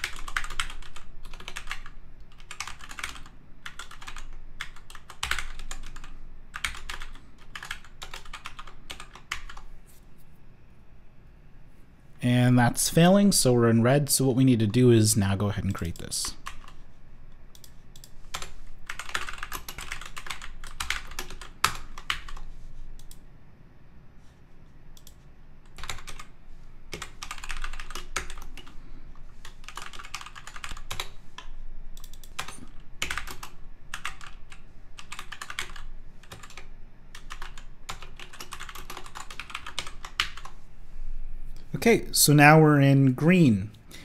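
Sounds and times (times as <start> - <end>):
typing on a computer keyboard: 0.0 - 9.7, 15.9 - 16.8, 17.5 - 23.2, 25.0 - 28.8, 29.4 - 40.6.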